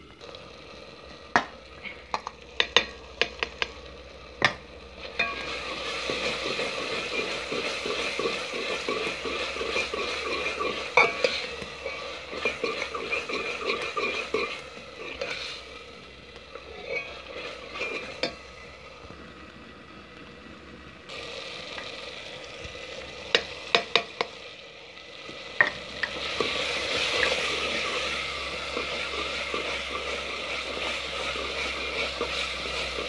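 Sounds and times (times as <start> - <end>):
onion and tomato sizzling: 0.0 - 33.0
metal spoon stirring and scraping: 5.0 - 15.7, 16.5 - 18.4, 25.6 - 33.0.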